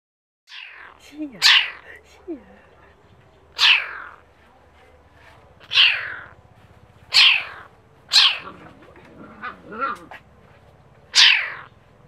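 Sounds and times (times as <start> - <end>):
kitten crying: 0.5 - 1.8, 3.6 - 4.2, 5.6 - 6.3, 7.1 - 8.5, 11.1 - 11.7.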